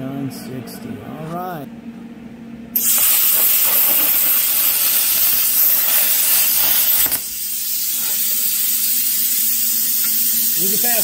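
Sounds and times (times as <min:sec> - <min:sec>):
plasma cutter hissing: 0:02.8 - 0:11.0.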